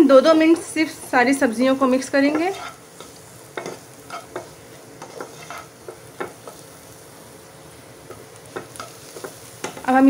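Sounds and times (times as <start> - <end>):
low steady sizzle: 0.0 - 10.0
spatula scraping a pan: 1.9 - 7.0, 8.0 - 10.0.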